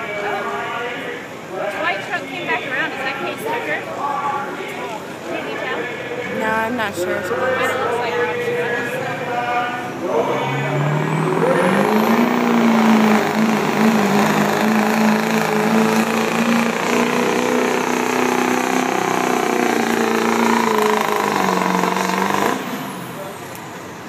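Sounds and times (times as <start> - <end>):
diesel truck engine at full throttle: 5.0 - 24.0.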